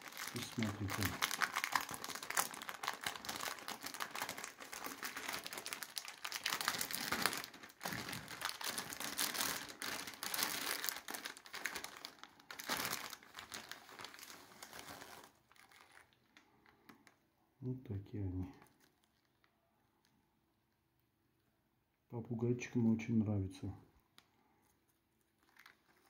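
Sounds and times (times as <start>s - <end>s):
plastic pouch crinkling: 0.0s - 17.2s, 18.5s - 20.1s, 24.6s - 26.0s.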